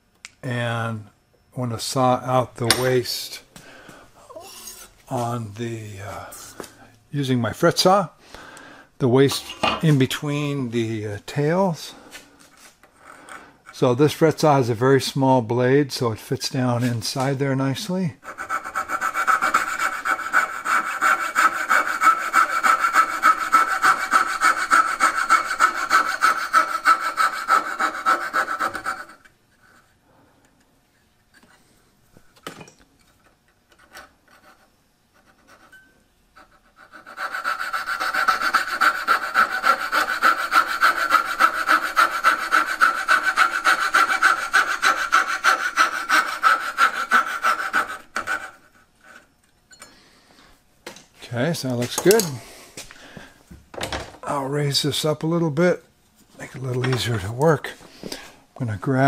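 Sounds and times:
fret saw cutting wood: 18.2s - 29.2s, 36.4s - 49.3s.

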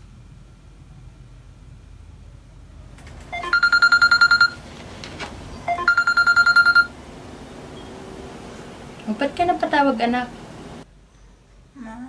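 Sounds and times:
mobile phone ringtone: 3.3s - 4.6s, 5.7s - 7.0s.

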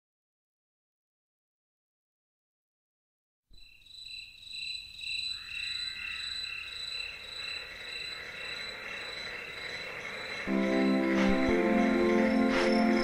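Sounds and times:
crickets and frogs chirring: 3.6s - 13.0s.

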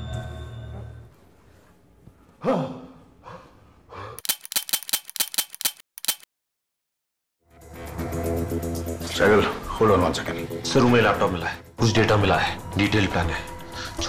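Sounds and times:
typing clicks: 4.2s - 6.3s.

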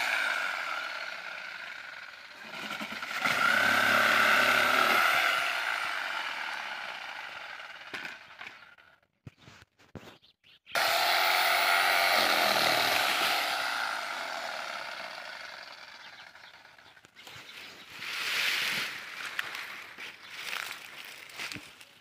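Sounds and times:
power saw cutting wood: 0.0s - 8.6s, 10.8s - 16.9s.

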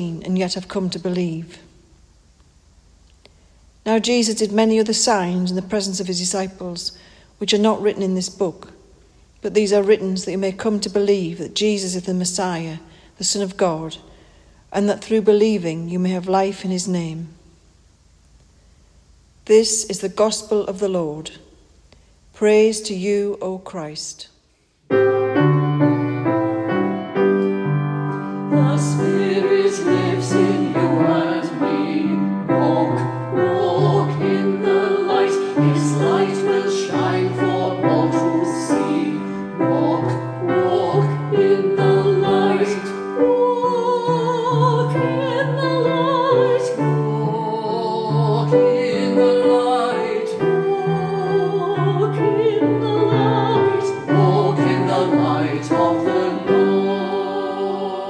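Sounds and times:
keyboard accompaniment: 24.9s - 58.0s
person singing classical vibrato: 28.4s - 58.0s.

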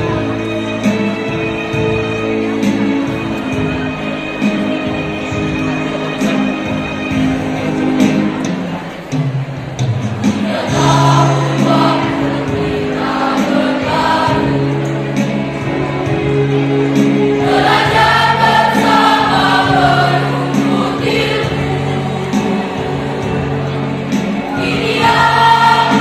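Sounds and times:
instrumental accompaniment: 0.0s - 26.0s
choir singing: 10.3s - 26.0s.

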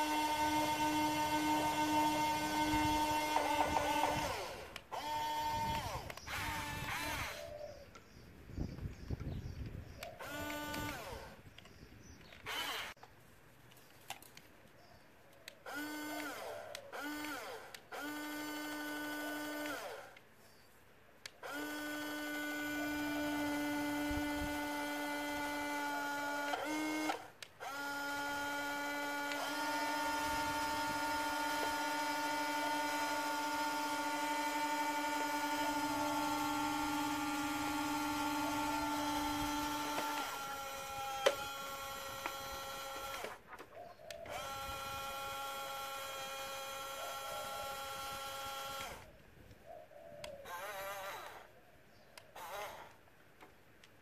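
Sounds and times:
electric motors whining: 0.0s - 8.2s, 8.8s - 13.0s, 15.5s - 20.6s, 21.2s - 49.2s, 50.2s - 51.6s, 52.2s - 53.0s.

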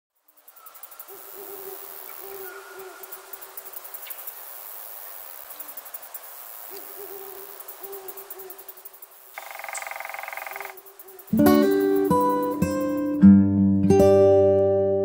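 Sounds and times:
steady hiss: 0.1s - 13.2s
bird hooting softly: 0.5s - 4.2s, 6.6s - 12.3s.

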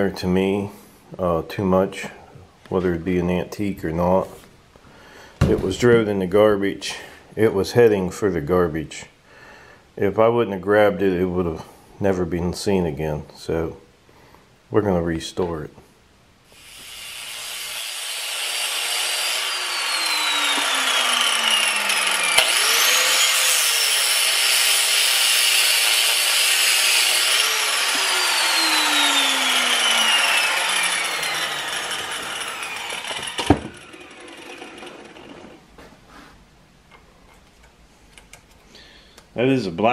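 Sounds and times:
angle grinder grinding metal: 16.6s - 35.6s.

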